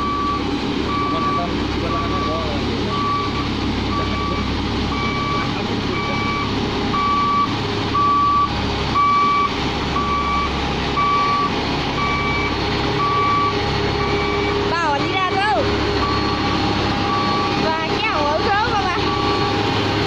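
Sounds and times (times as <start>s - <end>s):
reverse alarm beeping: 0.0s - 19.6s
diesel engine running: 0.0s - 20.0s.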